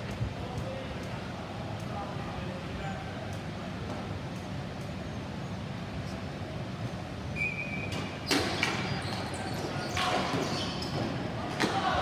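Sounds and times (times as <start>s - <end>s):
shoe squeak: 7.4s - 11.2s
clack of sticks and ball: 9.9s - 11.8s.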